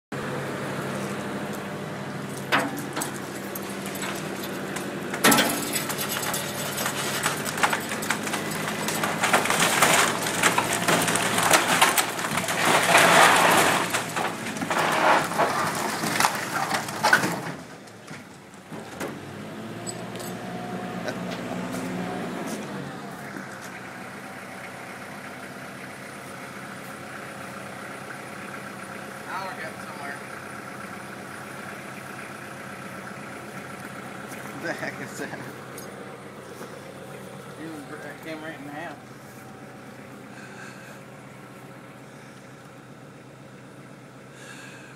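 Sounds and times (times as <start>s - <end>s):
tractor engine running: 0.1s - 44.9s
wooden house cracking and crashing: 5.1s - 19.2s.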